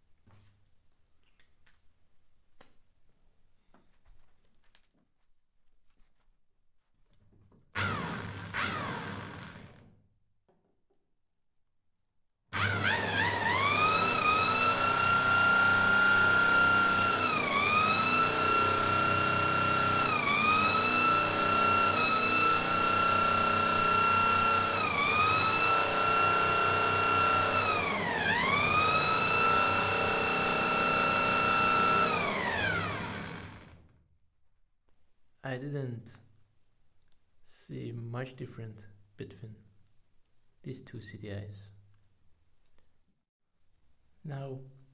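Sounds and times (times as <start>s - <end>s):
electric drill whine: 7.8s - 9.9s, 12.6s - 34.0s.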